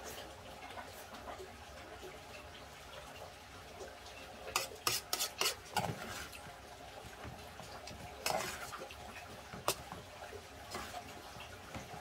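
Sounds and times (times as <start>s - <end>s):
spoon scraping and clinking in pot: 4.6s - 6.3s, 8.2s - 8.8s.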